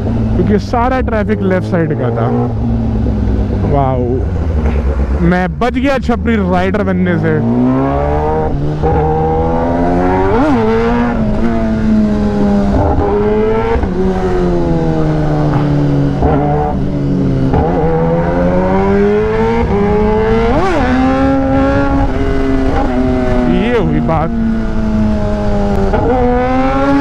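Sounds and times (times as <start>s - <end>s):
motorcycle engine revving: 0.0s - 27.0s.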